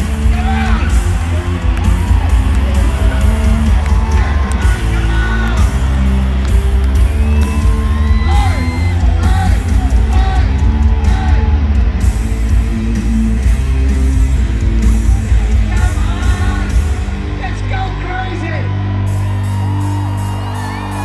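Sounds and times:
heavy rock over sound system: 0:00.0 - 0:21.0
voices yelling and singing: 0:00.1 - 0:06.4, 0:07.2 - 0:11.8, 0:14.9 - 0:18.6.

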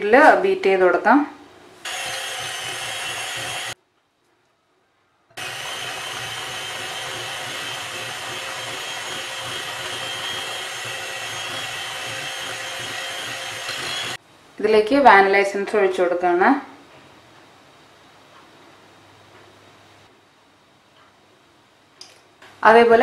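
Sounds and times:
electric hand mixer running: 0:01.8 - 0:03.8, 0:05.4 - 0:14.2.

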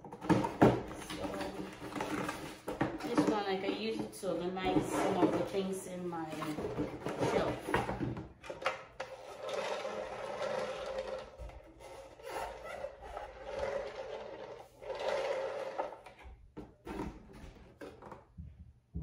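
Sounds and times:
plastic turntable base rasping: 0:09.0 - 0:16.2.

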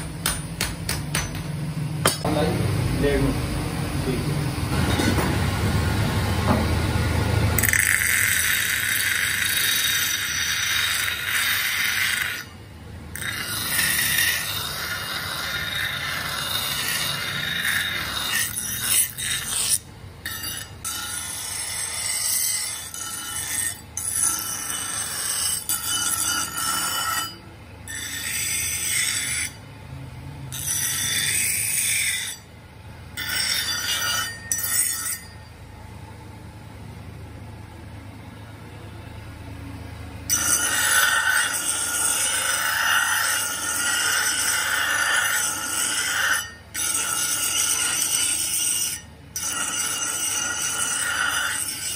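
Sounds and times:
grinder wheel grinding steel: 0:07.6 - 0:29.7, 0:30.5 - 0:32.5, 0:33.2 - 0:35.5, 0:40.3 - 0:51.9.

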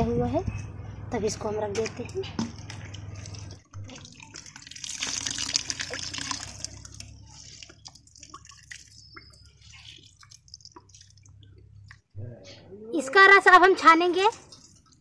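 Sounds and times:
juice dripping into steel bowl: 0:02.5 - 0:12.1
wet flowers squelching by hand: 0:02.6 - 0:12.1.

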